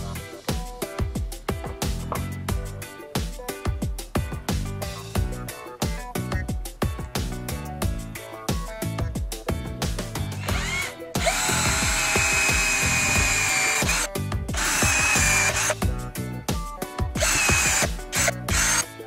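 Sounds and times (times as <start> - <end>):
cordless drill boring wood: 10.4 - 15.8, 17.2 - 18.9.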